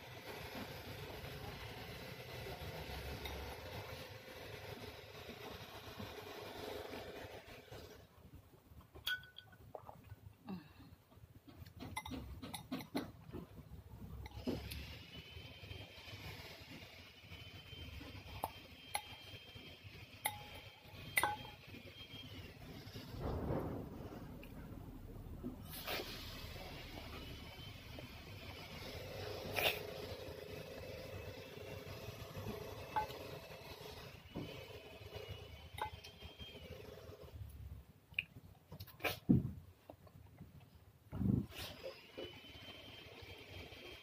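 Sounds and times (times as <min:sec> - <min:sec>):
fork clinking against glass bowl: 0:09.1 - 0:09.6.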